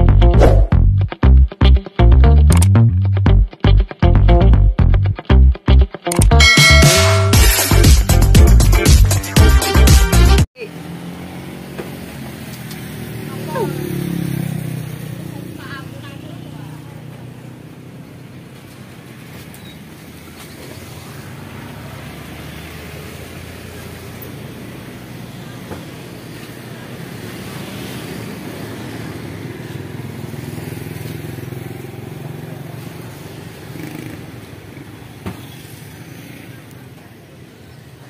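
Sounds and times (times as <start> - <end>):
motorbike engines running: 10.6 - 38.0.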